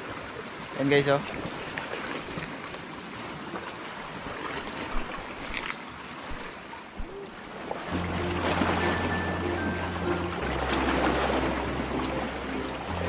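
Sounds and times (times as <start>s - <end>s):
waves washing against rocks: 0.0s - 13.0s
background music with low tones: 7.9s - 13.0s.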